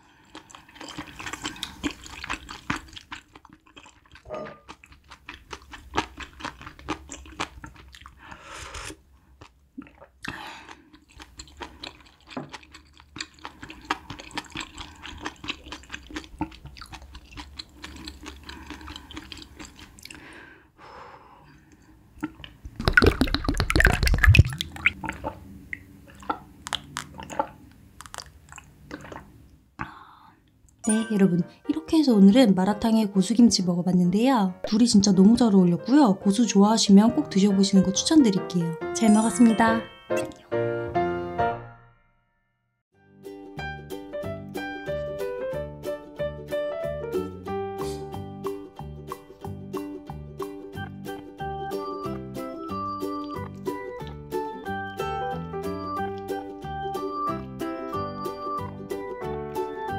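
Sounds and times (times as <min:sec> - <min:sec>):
chewing and sipping: 0:00.0 - 0:20.4, 0:21.6 - 0:30.1.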